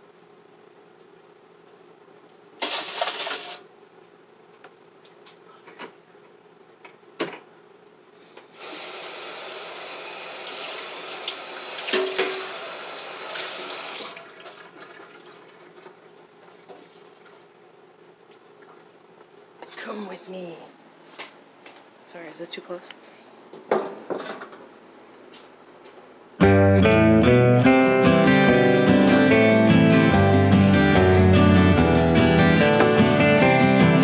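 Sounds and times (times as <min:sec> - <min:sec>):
kitchen tap running water: 0:08.6 - 0:16.6
dishes clattering: 0:11.9 - 0:12.5.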